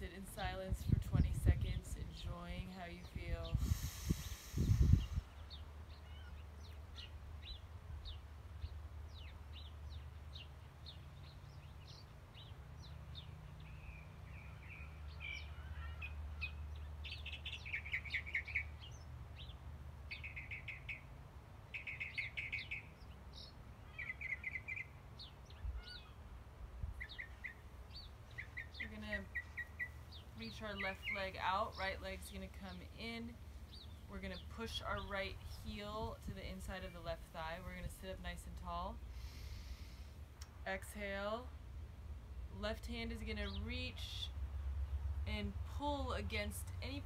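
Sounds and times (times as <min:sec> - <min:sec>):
low steady rumble: 0:00.0 - 0:20.2, 0:24.8 - 0:47.0
birds chirping: 0:00.0 - 0:21.1, 0:21.7 - 0:26.3, 0:26.9 - 0:41.4, 0:42.6 - 0:47.0
bird trills: 0:21.7 - 0:26.2.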